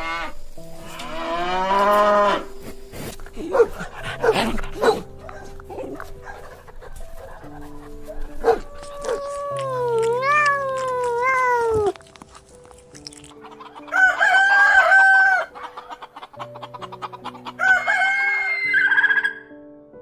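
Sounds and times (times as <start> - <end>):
background music: 0.0 - 20.0
cat meowing: 8.5 - 12.0
rooster crowing: 13.8 - 15.6, 17.6 - 19.5.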